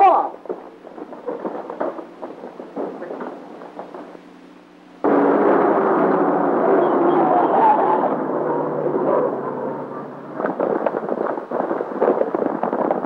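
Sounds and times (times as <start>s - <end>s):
cars speeding on dirt road: 5.0s - 10.6s.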